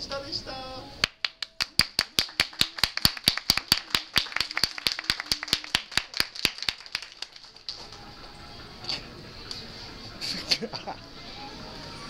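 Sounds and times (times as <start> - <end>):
people clapping: 1.0 - 8.1.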